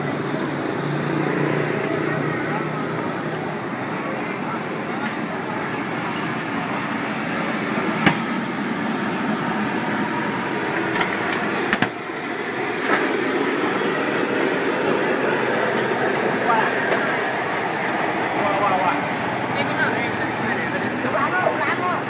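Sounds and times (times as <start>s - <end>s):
busy street market din: 0.0s - 22.0s.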